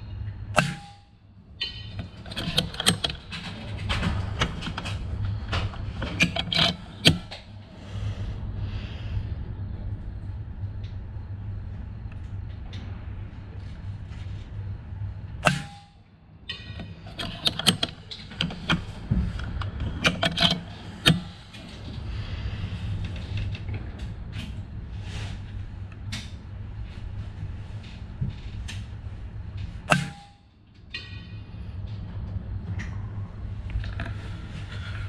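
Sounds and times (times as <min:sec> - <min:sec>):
low rumble: 0:03.2 - 0:15.5, 0:18.8 - 0:29.9, 0:30.8 - 0:35.0.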